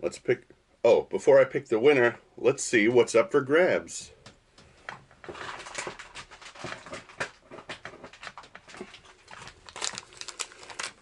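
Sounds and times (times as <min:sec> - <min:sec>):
plastic packaging crinkling: 0:05.2 - 0:11.0.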